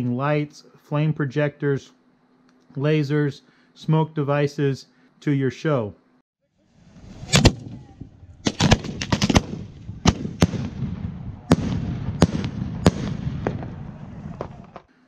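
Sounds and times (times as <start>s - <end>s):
fireworks bangs: 6.8s - 14.9s.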